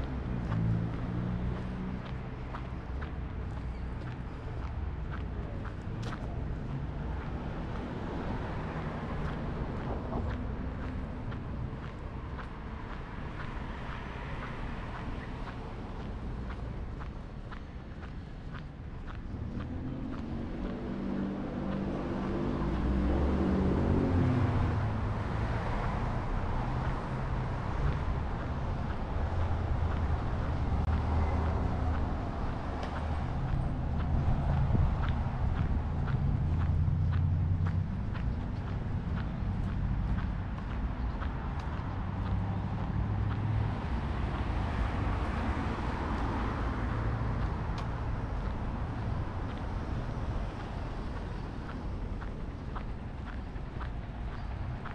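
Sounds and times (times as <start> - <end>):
traffic and tyre noise: 0.0 - 54.9
vehicle engine passing: 19.3 - 54.0.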